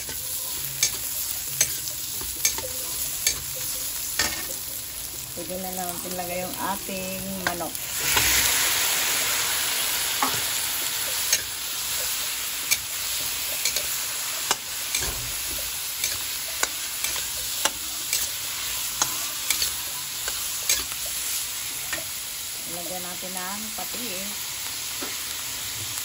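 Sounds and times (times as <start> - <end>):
chicken sizzling in hot oil: 0.0 - 26.0
metal spatula scraping pan: 11.1 - 21.2.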